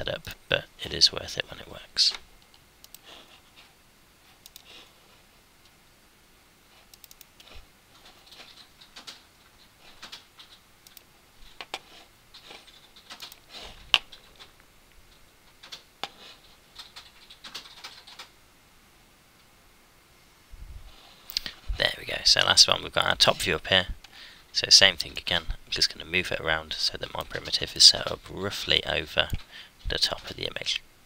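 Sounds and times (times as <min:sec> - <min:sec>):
computer mouse clicks: 0:02.1 - 0:03.1, 0:04.4 - 0:04.9, 0:06.9 - 0:09.2, 0:10.0 - 0:18.3.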